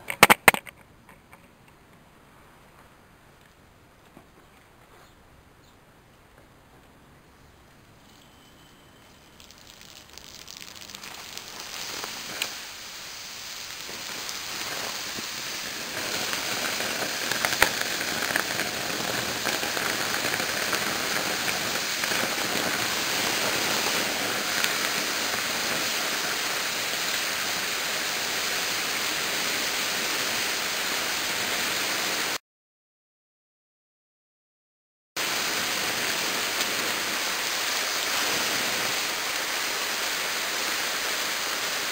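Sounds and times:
crackles and sharp pops: 0:07.8 - 0:28.5
water hissing on molten metal: 0:08.0 - 0:32.4, 0:35.2 - 0:41.9.

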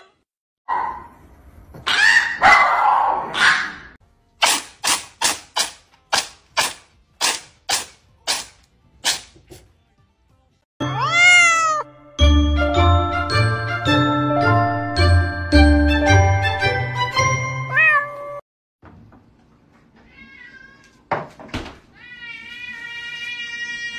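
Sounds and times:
dog barking hoarsely: 0:01.9 - 0:03.9
chiming music: 0:10.8 - 0:17.9
cat making sharp sounds: 0:10.9 - 0:11.8
kitten meowing: 0:11.0 - 0:11.8.

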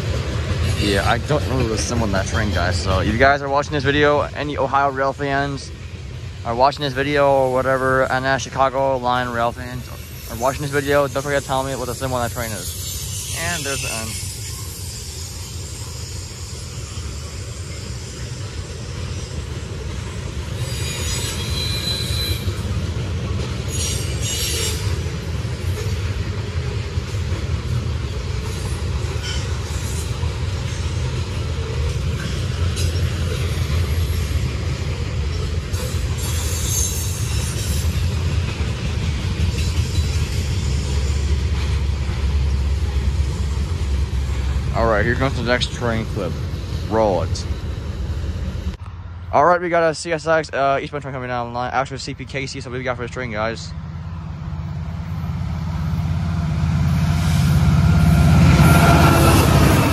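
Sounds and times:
freight train rumbling: 0:00.0 - 0:59.9
high wheel squeal: 0:06.5 - 0:49.2.

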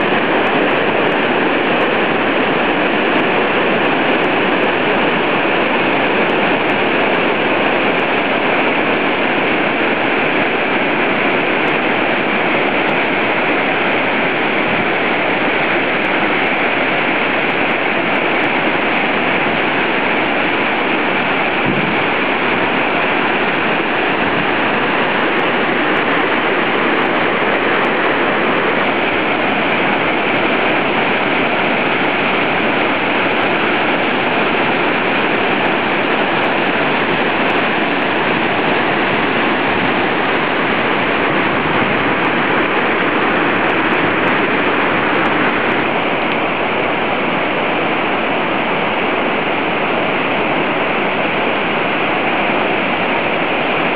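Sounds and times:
mountain torrent rushing: 0:00.0 - 0:53.9.

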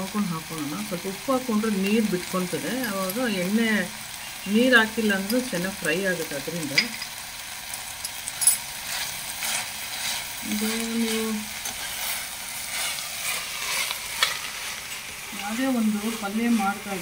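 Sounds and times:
vegetables sizzling in a pan: 0:00.0 - 0:17.0
spoon stirring and scraping: 0:08.0 - 0:17.0.

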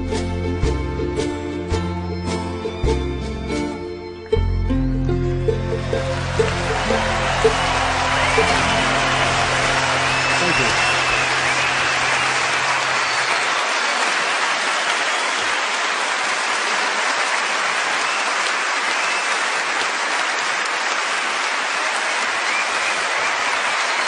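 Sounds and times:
crowd applauding: 0:05.4 - 0:24.0.

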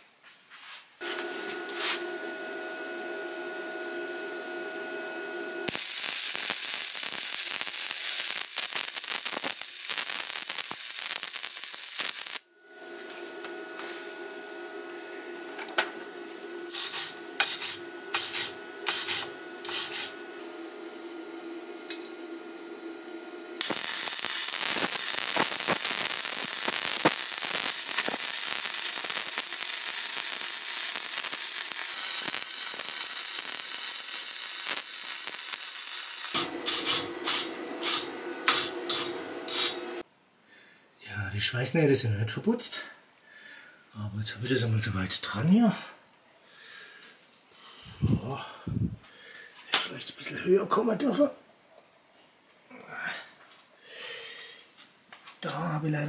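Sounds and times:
welding machine hum: 0:01.0 - 0:40.0
arc welding sizzling crackle: 0:01.0 - 0:40.1, 0:54.0 - 0:56.0
tack-weld bursts: 0:05.6 - 0:12.4, 0:16.7 - 0:20.2, 0:23.6 - 0:40.0.

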